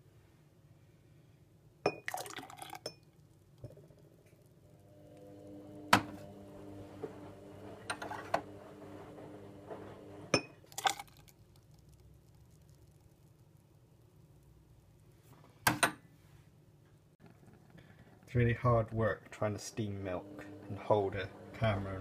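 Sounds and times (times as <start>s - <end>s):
steady low hum: 18.8s - 22.0s.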